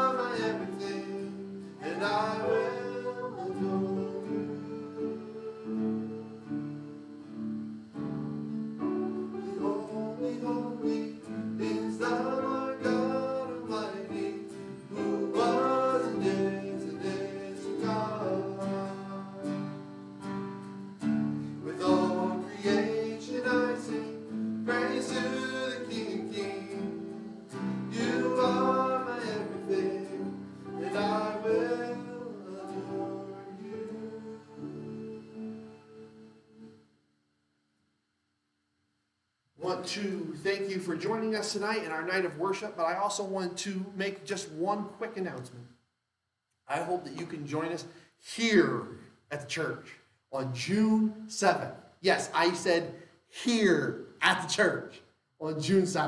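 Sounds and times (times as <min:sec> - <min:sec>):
strummed acoustic guitar: 0:00.0 - 0:04.8, 0:08.0 - 0:35.1
person singing worship song: 0:00.0 - 0:07.0, 0:09.0 - 0:20.3, 0:21.4 - 0:36.8, 0:39.6 - 0:45.6.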